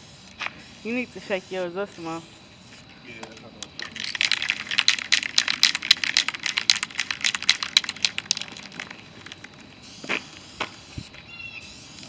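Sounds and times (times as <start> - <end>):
spray can rattling: 3.2 - 10.9.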